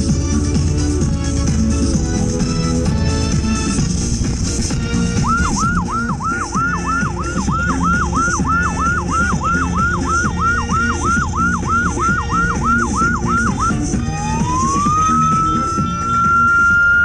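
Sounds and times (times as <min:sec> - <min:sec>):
electronic siren yelping and wailing: 0:04.9 - 0:17.0.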